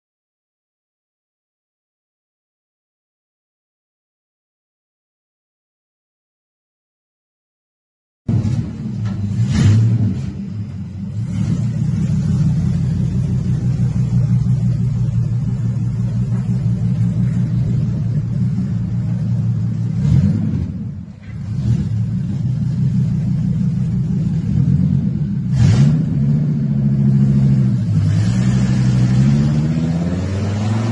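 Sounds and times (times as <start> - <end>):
engine blips: 8.3 - 30.9
truck engine running: 8.3 - 30.9.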